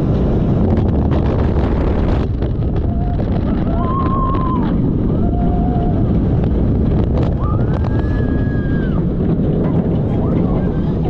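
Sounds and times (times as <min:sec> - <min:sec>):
roller coaster train rumble: 0:00.0 - 0:11.0
wind rushing over microphone: 0:00.0 - 0:11.0
riders screaming: 0:02.9 - 0:06.2.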